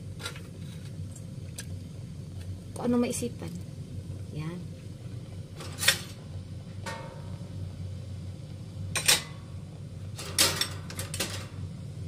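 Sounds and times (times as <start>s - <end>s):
steady low hum: 0.0s - 12.0s
kitchenware clinking against pot: 9.0s - 9.4s.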